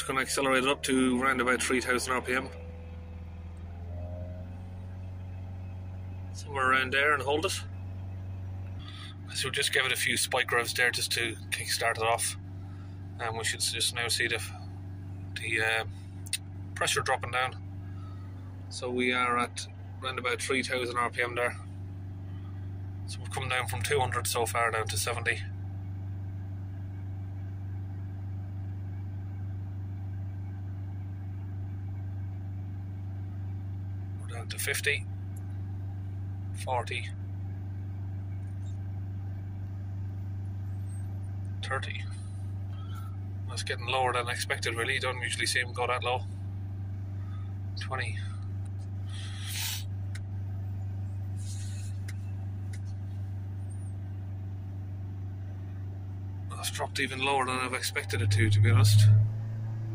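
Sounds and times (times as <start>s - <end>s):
diesel engine at high revs: 0.0s - 25.7s, 34.0s - 39.4s, 40.5s - 55.8s, 56.4s - 59.9s
brief hissing: 49.2s - 49.9s.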